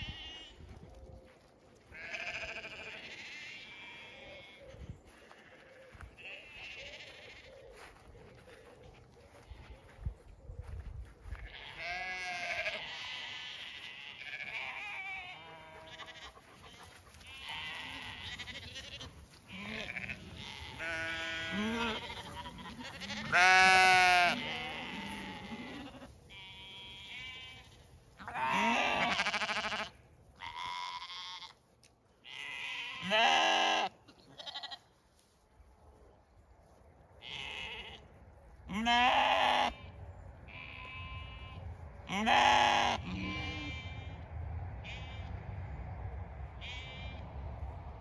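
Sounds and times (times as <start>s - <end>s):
lambs bleating: 0.0s - 0.5s, 2.0s - 7.6s, 11.2s - 31.6s, 32.2s - 34.9s, 37.2s - 38.1s, 38.7s - 39.9s, 40.5s - 44.2s, 46.6s - 47.2s.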